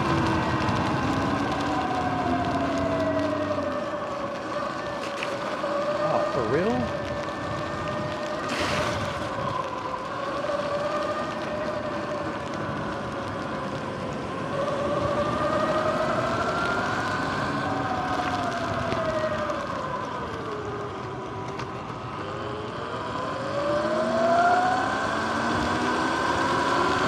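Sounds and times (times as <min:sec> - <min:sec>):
tyre hiss on wet pavement: 0:00.0 - 0:19.9.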